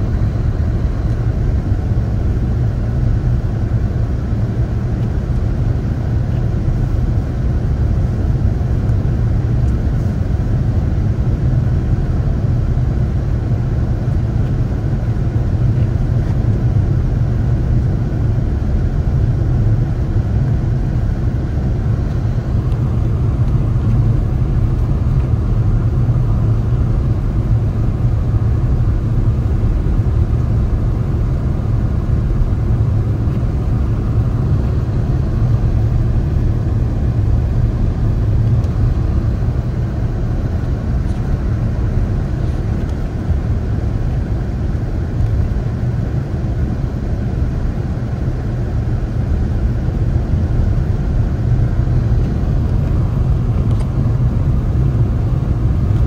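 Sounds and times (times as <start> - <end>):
car driving rumble: 11.5 - 56.0.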